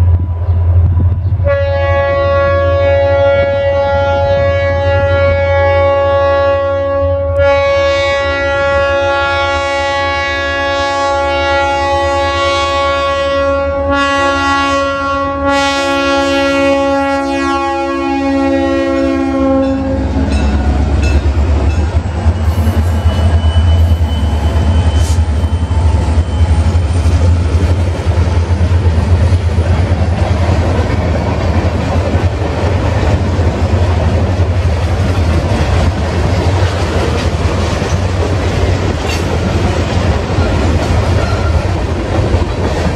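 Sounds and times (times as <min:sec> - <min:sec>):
locomotive air horn blasts: 0:01.4 - 0:21.2
train wheels clicking over rail joints: 0:20.2 - 0:42.9.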